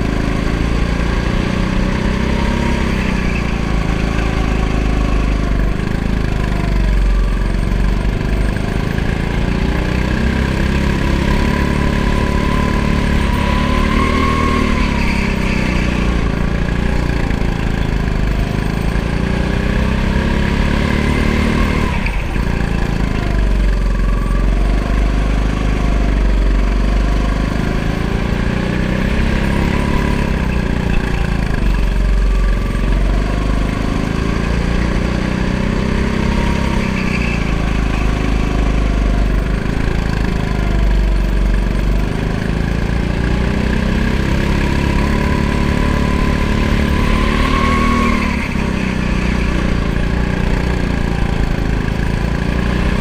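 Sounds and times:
go-kart engine revving: 0.0 - 53.0.

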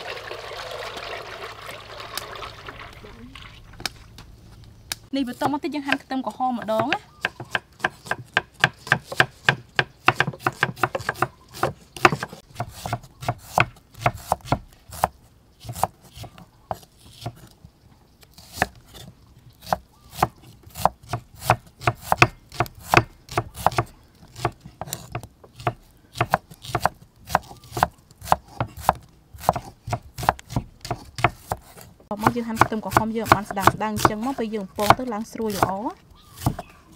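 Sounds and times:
knife chopping on wooden board: 6.6 - 17.5, 18.4 - 35.8, 36.4 - 36.7.

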